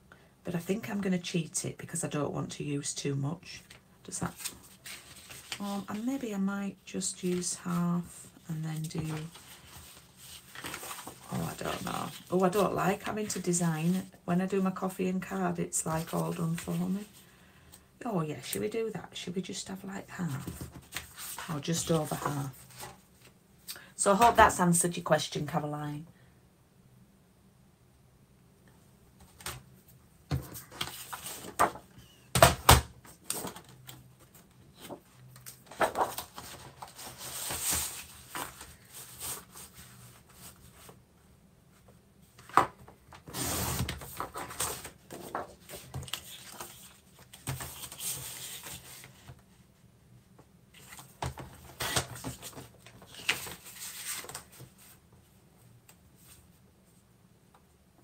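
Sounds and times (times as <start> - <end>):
paper sliding and rustling: 4.3 - 6.0, 8.8 - 12.3, 30.4 - 31.8, 33.2 - 41.0, 43.2 - 49.4, 50.7 - 55.0.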